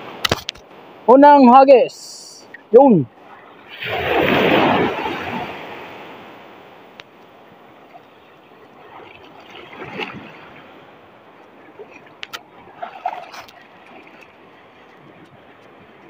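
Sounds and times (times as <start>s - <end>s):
water splashes: 2.4s - 16.0s
shallow water sloshing: 3.1s - 16.0s.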